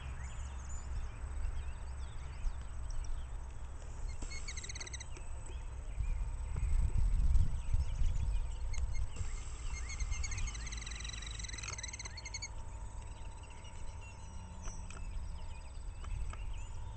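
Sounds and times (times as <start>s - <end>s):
bird trilling high notes: 4.0s - 5.2s, 8.5s - 15.6s.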